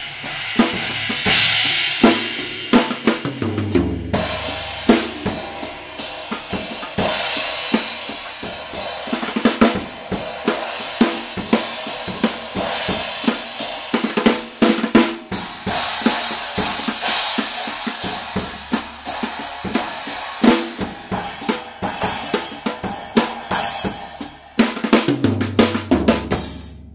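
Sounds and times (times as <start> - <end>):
drum kit played with brushes: 0.0 - 26.9
ringing cymbals: 4.1 - 13.9.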